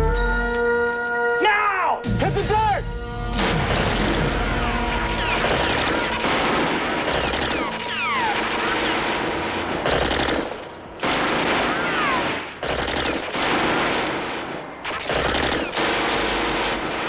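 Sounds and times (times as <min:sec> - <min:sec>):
automatic gunfire bursts: 0:05.1 - 0:17.0.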